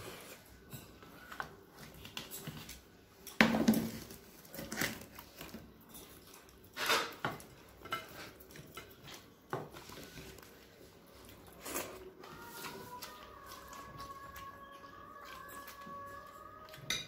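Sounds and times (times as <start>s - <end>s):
plates and bowls clinking: 16.7s - 17.0s.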